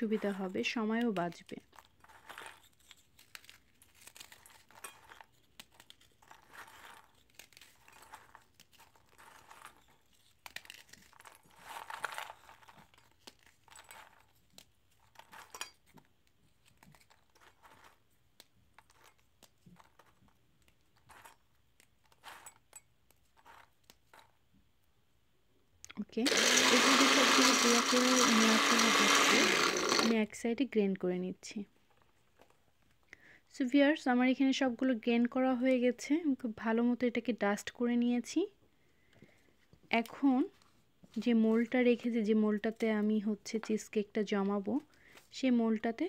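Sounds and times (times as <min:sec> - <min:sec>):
cookies crunching and snapping: 0:01.1 - 0:20.8.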